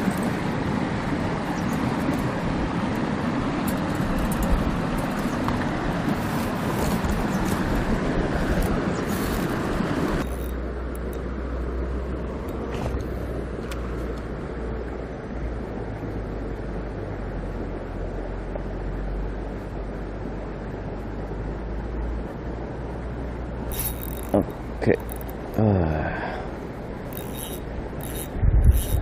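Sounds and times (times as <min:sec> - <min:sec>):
steady rushing noise: 0:00.0 - 0:29.0
crackles and ticks: 0:27.0 - 0:29.0.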